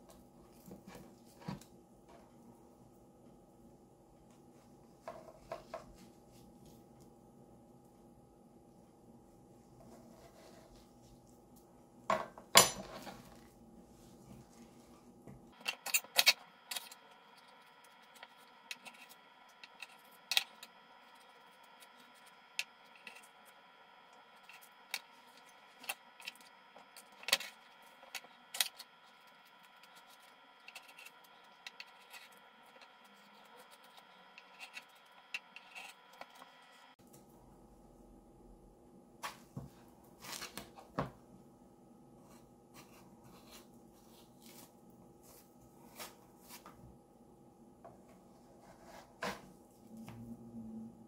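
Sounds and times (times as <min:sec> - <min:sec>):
soft handling noises: 0:42.2 - 0:47.0.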